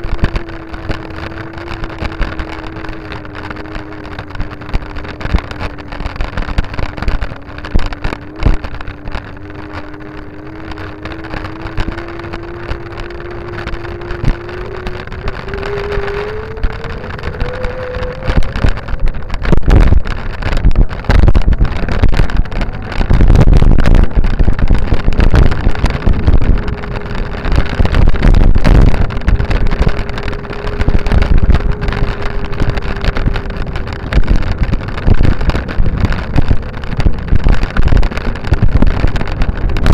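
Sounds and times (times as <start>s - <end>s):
motor-like whine: 0.0s - 20.3s
wind buffeting microphone: 0.0s - 39.9s.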